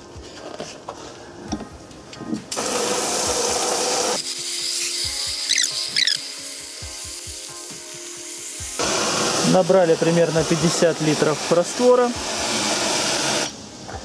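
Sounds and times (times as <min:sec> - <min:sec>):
background music: 0:00.0 - 0:14.0
water spraying from hose: 0:02.5 - 0:13.6.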